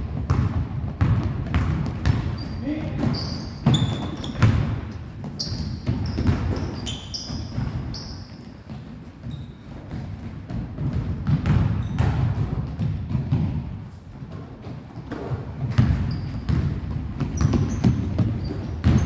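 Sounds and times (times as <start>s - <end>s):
basketballs bouncing on wood floor: 0.0s - 19.0s
sneakers squeaking on wood: 2.0s - 10.2s, 15.7s - 19.0s.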